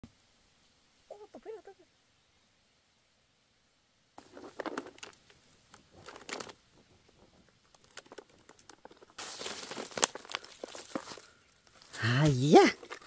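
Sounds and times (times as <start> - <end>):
soil and leaves rustling: 0.0 - 13.0.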